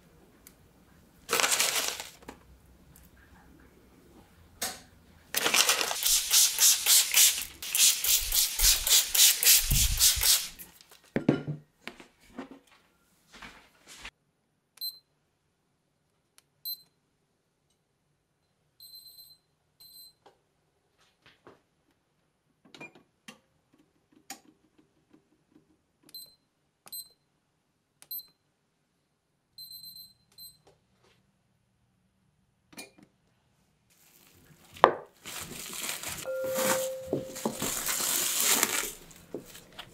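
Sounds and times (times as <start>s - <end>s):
oven control panel beeps: 36.3s - 37.3s.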